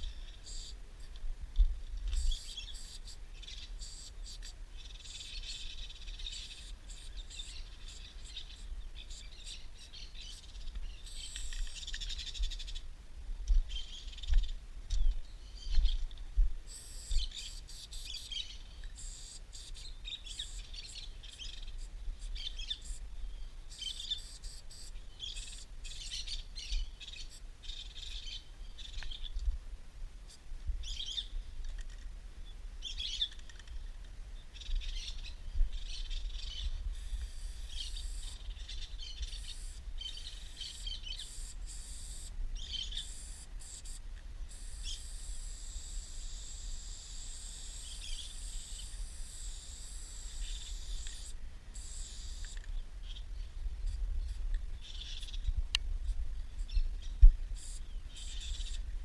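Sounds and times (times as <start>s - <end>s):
spray-paint can hissing: 0.4s - 0.8s, 2.2s - 3.2s, 3.8s - 5.7s, 6.3s - 9.6s, 10.3s - 11.9s, 16.7s - 18.4s, 19.0s - 23.0s, 23.7s - 26.1s, 36.9s - 38.4s, 39.2s - 42.3s, 42.9s - 52.6s, 57.6s - 58.8s
birds chirping and trilling: 2.2s - 12.9s, 13.7s - 16.1s, 16.9s - 29.4s, 30.8s - 31.5s, 32.4s - 41.4s, 42.6s - 43.2s, 52.4s - 53.6s, 54.2s - 55.6s.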